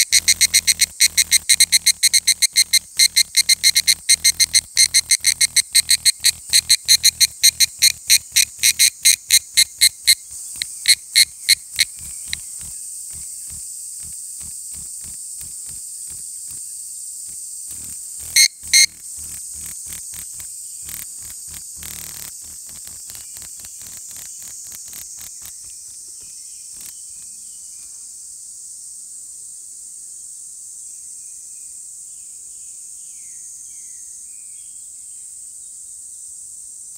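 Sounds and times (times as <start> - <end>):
cicada ringing pulses: 0.0 - 27.5
steady high hiss: 0.0 - 31.1.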